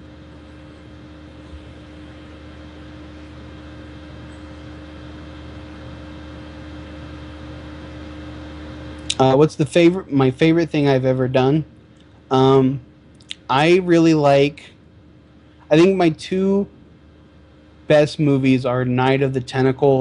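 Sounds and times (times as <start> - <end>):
faint constant tone: 0.0 - 20.0
low hum: 0.0 - 20.0.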